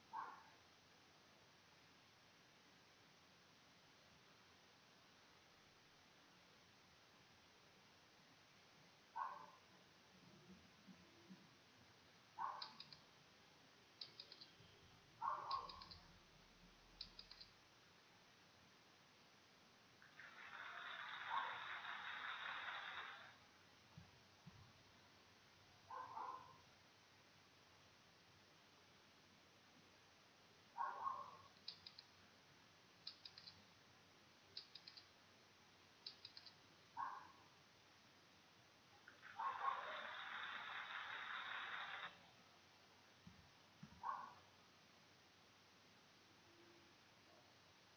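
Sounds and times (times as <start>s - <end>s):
quick sharp clicks: 12.5s - 13.1s, 14.0s - 14.6s, 15.4s - 16.1s, 17.0s - 17.6s, 31.5s - 32.1s, 33.0s - 33.6s, 34.6s - 35.1s, 36.0s - 36.6s.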